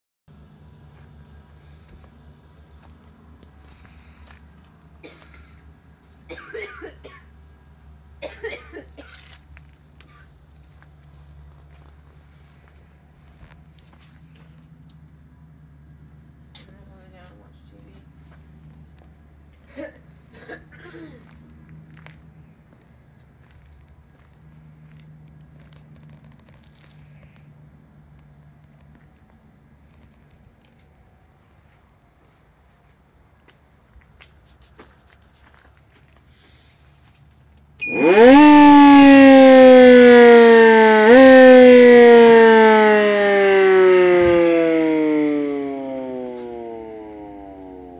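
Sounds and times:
person clearing throat: 5.0s - 5.6s, 6.3s - 7.3s, 19.7s - 21.2s
small crackles and rustles: 9.0s - 15.2s, 21.2s - 27.5s, 28.1s - 37.7s.

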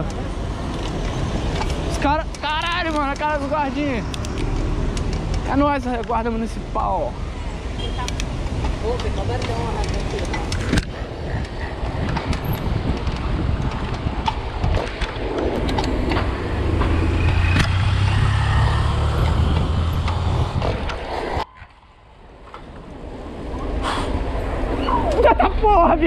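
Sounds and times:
vehicle engine hum: 0.0s - 25.5s
street traffic: 0.0s - 26.0s
wind rumble: 0.0s - 26.0s.

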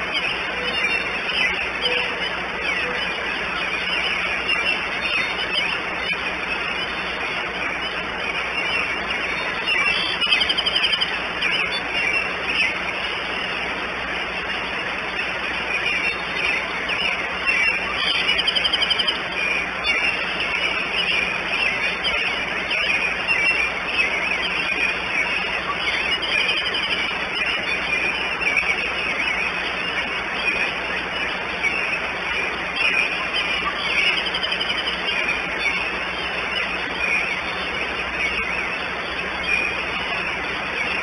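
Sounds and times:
small birds singing: 0.0s - 41.0s
fast bird trill: 7.8s - 13.1s, 15.7s - 41.0s.

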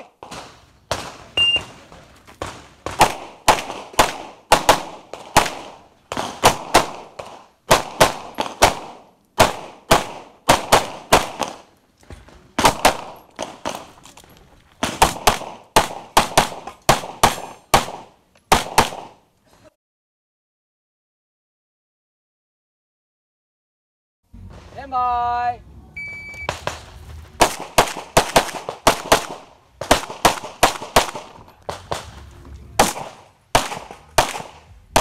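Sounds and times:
pistol shots: 0.0s - 11.7s, 12.6s - 14.0s, 14.8s - 19.2s, 26.4s - 32.2s, 32.8s - 35.0s.

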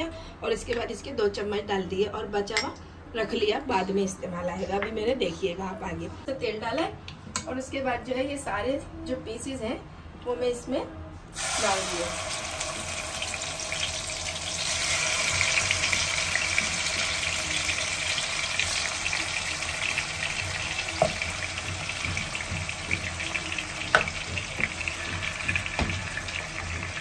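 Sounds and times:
chicken sizzling in oil: 11.4s - 27.0s.

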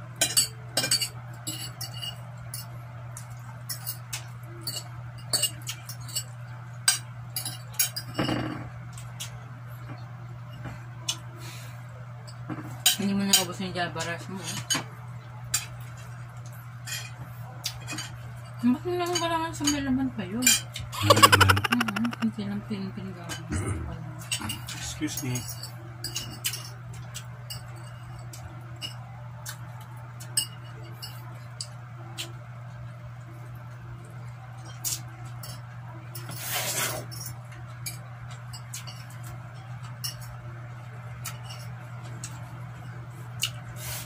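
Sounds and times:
murmured voice: 21.0s - 22.3s, 23.5s - 24.0s.

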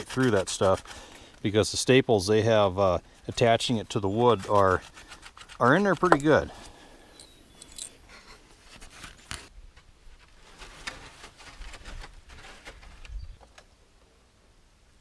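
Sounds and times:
hands working at wooden crate: 3.1s - 6.8s.

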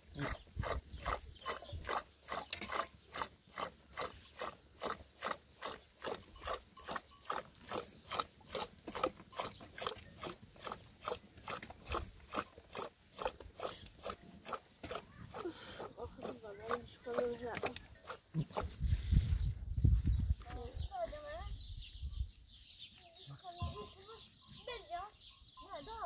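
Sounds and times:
milk churning by hand: 0.0s - 19.6s.

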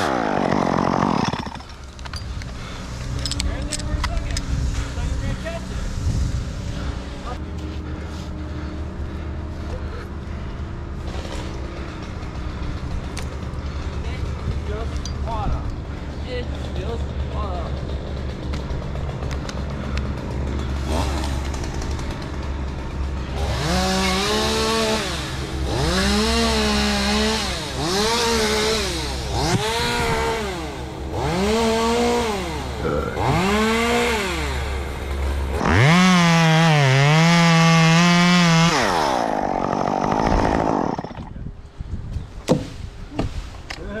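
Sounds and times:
chainsaw revving: 0.0s - 3.4s, 11.0s - 15.0s, 15.8s - 41.4s
chainsaw idling hum: 0.0s - 41.5s.

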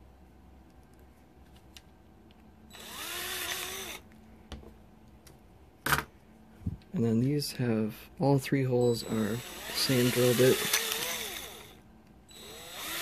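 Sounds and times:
cordless drill drilling plastic: 2.7s - 4.0s, 9.0s - 13.0s.

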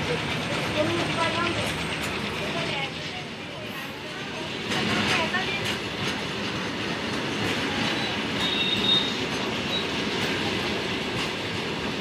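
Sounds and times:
freight wagons rumbling on rails: 0.0s - 12.0s
wheel squeal: 7.9s - 10.0s.

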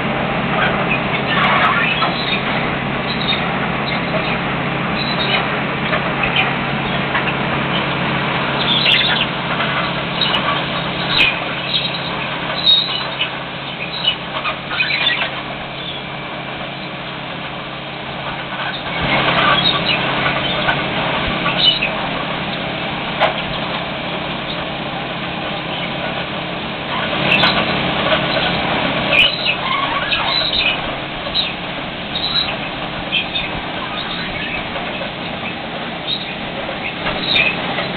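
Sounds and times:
engines humming: 0.0s - 37.9s
excavating wheel clatter and knocks: 0.0s - 37.9s.

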